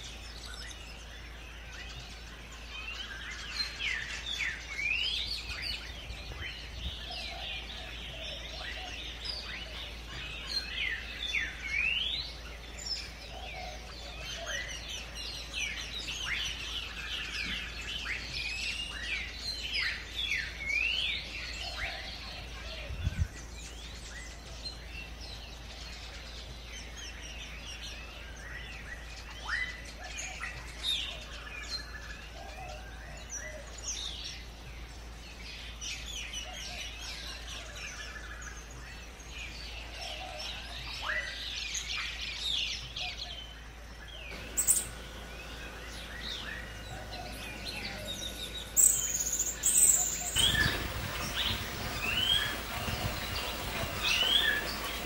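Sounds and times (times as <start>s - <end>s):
birds chirping and singing: 0.0s - 55.0s
low rumbling noise: 43.7s - 55.0s.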